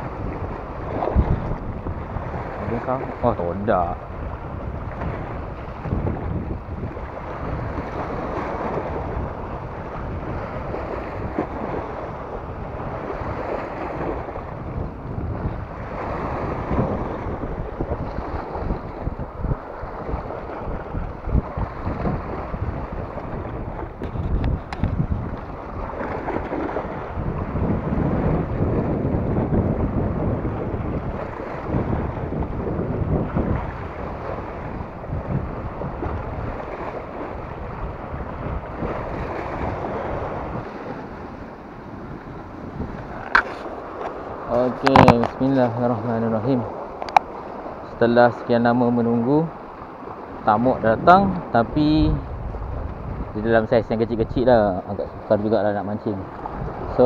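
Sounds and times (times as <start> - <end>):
sea waves breaking on rocks: 0.0 - 57.0
wind buffeting microphone: 0.0 - 57.0
waves splashing on rocks: 31.0 - 48.5.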